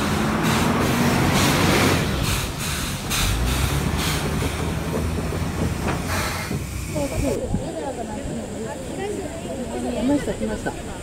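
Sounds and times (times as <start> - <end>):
bus engine running: 0.0 - 7.4
train wheels clattering over joints: 0.0 - 7.4.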